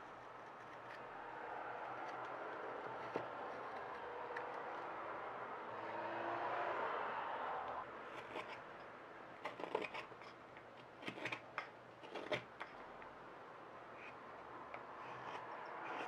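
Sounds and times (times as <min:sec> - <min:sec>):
knife scraping wood: 0:00.0 - 0:01.2, 0:01.8 - 0:04.9, 0:08.0 - 0:13.0, 0:13.9 - 0:16.0
knife slicing wood: 0:09.4 - 0:10.1.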